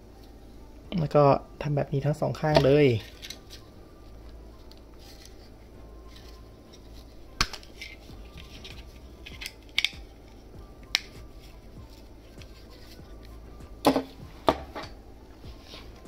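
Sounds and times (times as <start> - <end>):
plastic parts snapping into place: 7.4 - 7.9.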